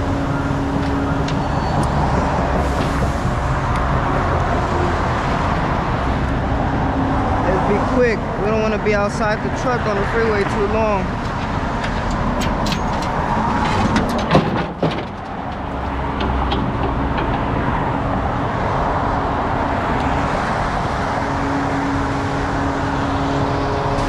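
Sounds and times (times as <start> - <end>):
freeway traffic: 0.0 - 24.0
metal clanks and knocks: 11.2 - 18.0.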